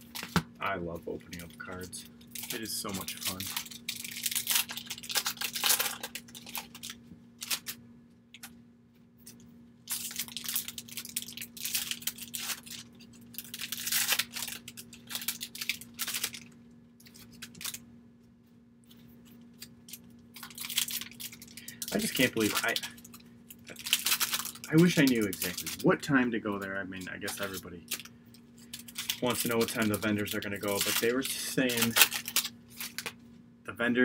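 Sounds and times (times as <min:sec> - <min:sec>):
faint steady hum: 0:00.0 - 0:34.0
plastic wrapper crinkling and tearing: 0:01.3 - 0:07.8, 0:09.3 - 0:17.8, 0:19.2 - 0:33.2
cards being handled: 0:26.5 - 0:33.2.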